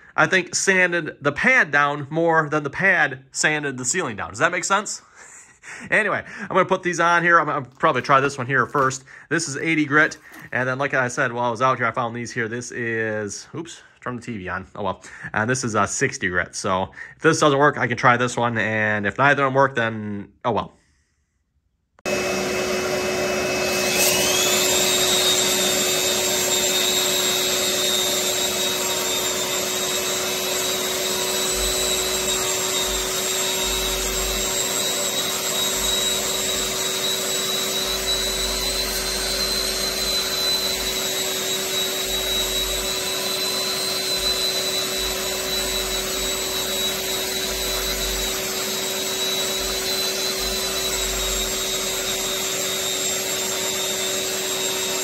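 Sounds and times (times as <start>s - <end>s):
drywall sander motor whine: 22.0s - 55.0s.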